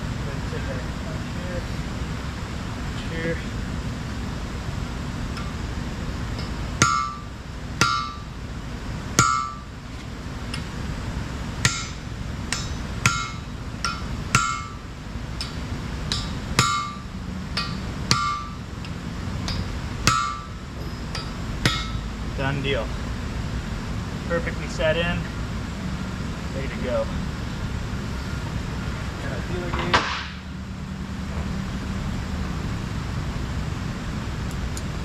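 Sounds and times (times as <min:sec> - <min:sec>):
hammer striking metal drift: 0:06.3 - 0:08.4, 0:09.2 - 0:09.8, 0:11.6 - 0:22.2.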